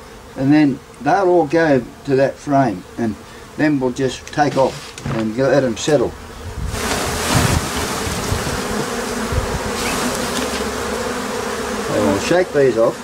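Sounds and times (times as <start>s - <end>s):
honey bees buzzing loudly: 0.0s - 13.0s
dull thumps: 4.3s - 6.1s.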